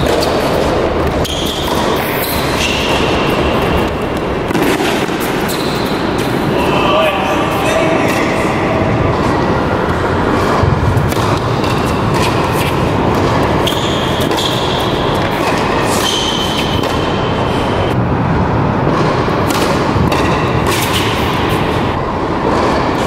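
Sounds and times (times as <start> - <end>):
shoe squeaks: 0.0 - 6.4, 13.5 - 17.9
tennis ball struck by rackets: 0.0 - 6.4, 10.3 - 17.4, 18.8 - 21.8
ball bouncing: 0.0 - 6.5, 9.0 - 18.0, 18.8 - 21.8.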